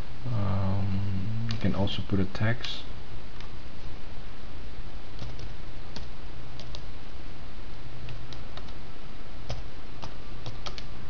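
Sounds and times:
steady background noise: 0.0s - 11.0s
computer mouse clicks: 5.2s - 6.9s, 8.0s - 8.8s, 9.5s - 10.9s.

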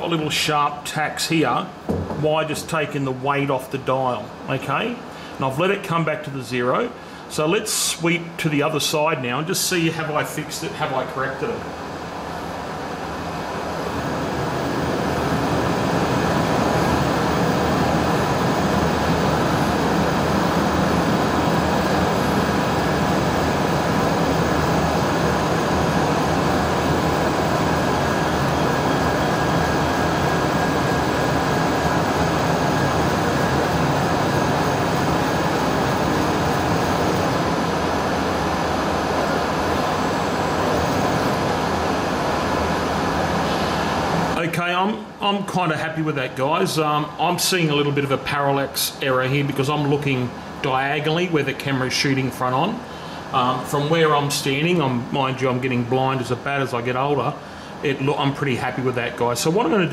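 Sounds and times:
milling machine axis drive running: 12.2s - 44.4s.

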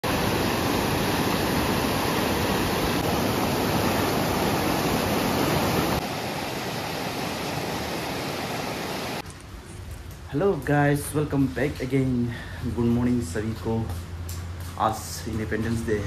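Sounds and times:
river rapids rushing: 0.0s - 9.2s.

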